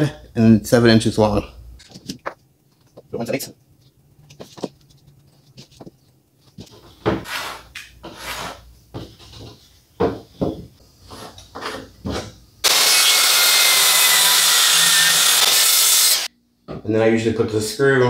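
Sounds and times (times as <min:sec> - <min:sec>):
circular saw cutting plywood: 0:12.6 - 0:16.3.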